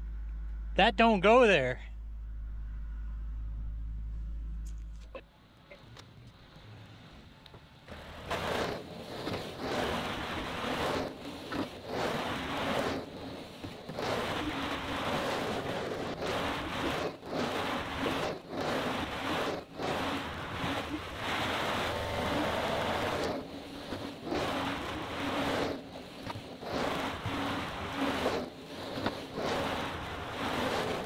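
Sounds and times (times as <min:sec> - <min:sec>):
diesel engine humming: 0:00.0 - 0:31.0
rushing noise: 0:06.6 - 0:31.0.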